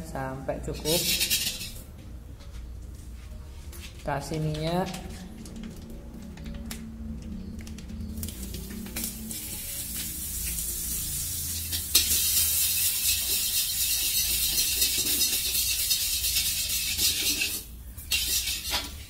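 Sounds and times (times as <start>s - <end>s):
oil sizzling in a wok: 8.2s - 19.0s.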